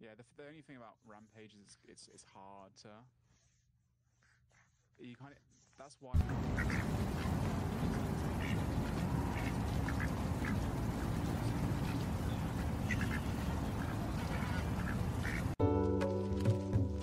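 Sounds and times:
duck quacking: 0:06.2 - 0:15.6
music: 0:15.6 - 0:17.0.

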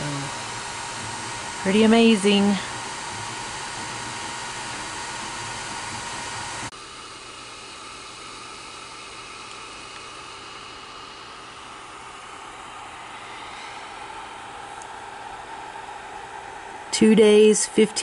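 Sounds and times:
cooling fans whirring: 0:00.0 - 0:18.0.

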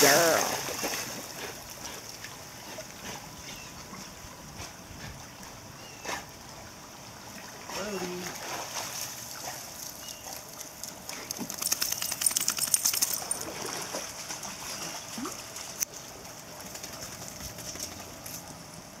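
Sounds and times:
dog shaking water off its coat: 0:11.2 - 0:15.8.

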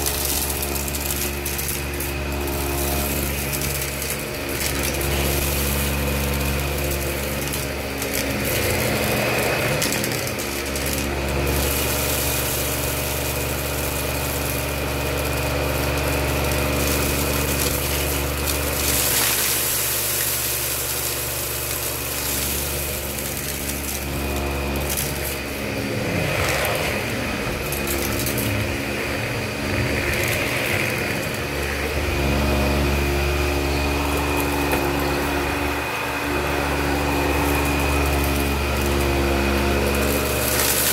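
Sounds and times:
debris crackling into vacuum: 0:00.0 - 0:40.9
vacuum cleaner running: 0:00.0 - 0:40.9.

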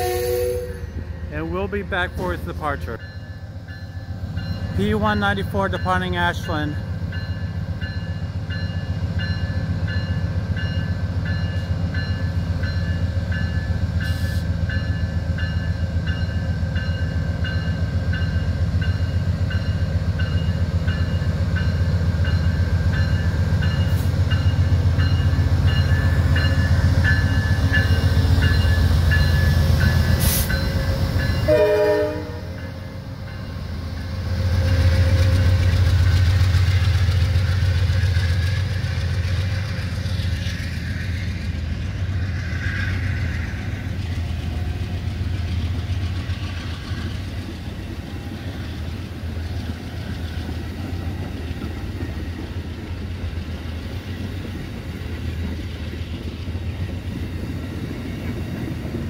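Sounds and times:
locomotive bell ringing: 0:00.0 - 0:36.4
diesel locomotive engine under load: 0:00.0 - 0:59.0.

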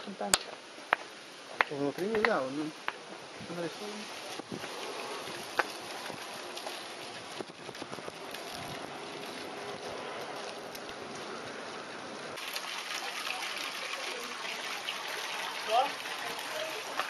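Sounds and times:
fountain splashing into pond: 0:03.5 - 0:17.0.

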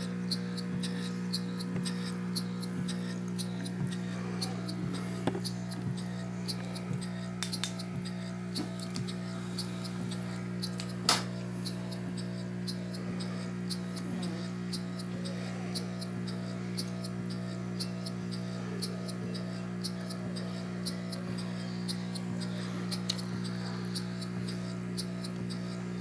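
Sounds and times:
air pump electric hum: 0:00.0 - 0:26.0
model steam engine clicking: 0:00.0 - 0:26.0.

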